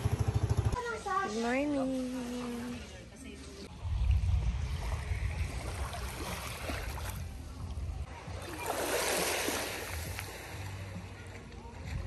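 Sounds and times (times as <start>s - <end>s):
small waves lapping on sand: 0.8s - 12.0s
wind rumble on microphone: 3.7s - 8.4s.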